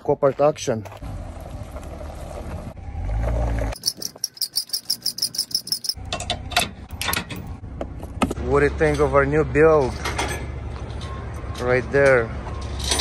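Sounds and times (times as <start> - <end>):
insect chirping rapidly: 3.8 - 6.0.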